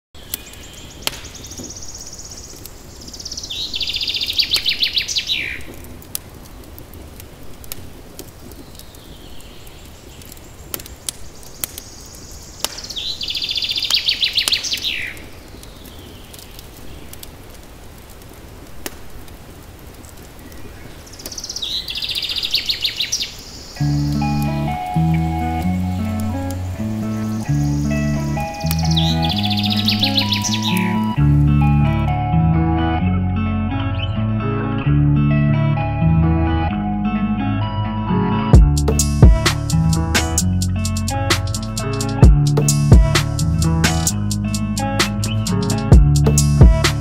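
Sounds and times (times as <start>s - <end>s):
faint sharp clicks: 0.3s - 1.8s, 5.6s - 9.5s, 10.2s - 13.0s, 15.5s - 20.6s, 21.2s - 21.4s
songbird trilling: 21.1s - 31.2s.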